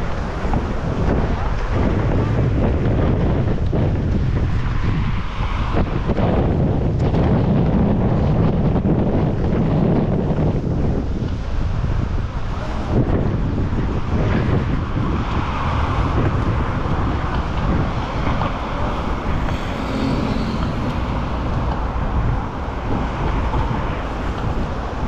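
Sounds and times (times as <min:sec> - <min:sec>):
gale wind buffeting microphone: 0:00.0 - 0:25.0.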